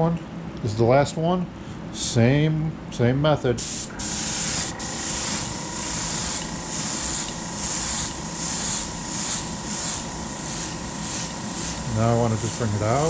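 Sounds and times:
steady low hum: 0:00.0 - 0:13.0
airbrush spraying hiss: 0:03.6 - 0:13.0.

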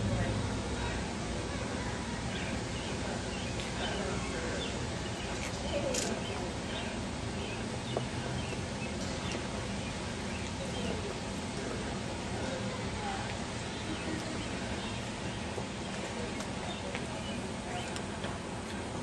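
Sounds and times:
faint distant voices: 0:00.0 - 0:19.0
small birds chirping: 0:02.2 - 0:11.5, 0:12.4 - 0:18.3.

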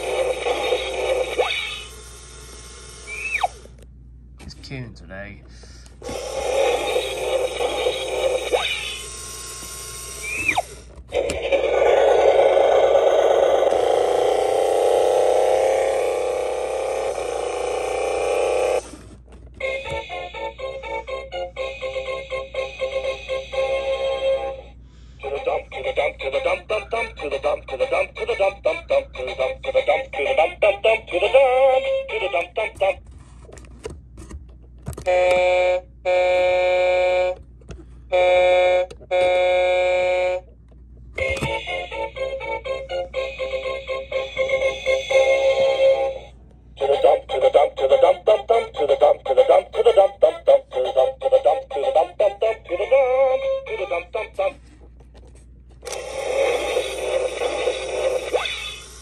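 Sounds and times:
toy truck noisy rumble effect: 0:00.0 - 0:03.8, 0:06.0 - 0:20.4, 0:41.2 - 0:54.5, 0:55.8 - 0:59.0
electronic horn tones: 0:35.0 - 0:37.4, 0:38.1 - 0:40.5.

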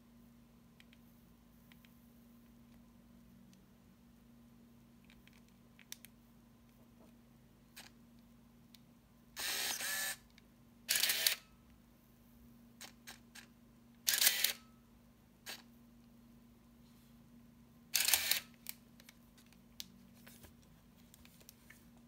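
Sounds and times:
camera film winding motor: 0:09.4 - 0:10.2, 0:10.9 - 0:11.4, 0:14.1 - 0:14.6, 0:18.0 - 0:18.6
camera shutter firing: 0:10.9 - 0:11.4, 0:14.1 - 0:14.6, 0:18.0 - 0:18.5.

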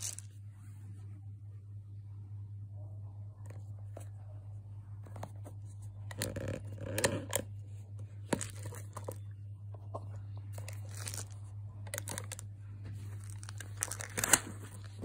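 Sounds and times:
steady low hum: 0:00.0 - 0:15.0
plastic lid scraping and clicking: 0:06.1 - 0:07.5.

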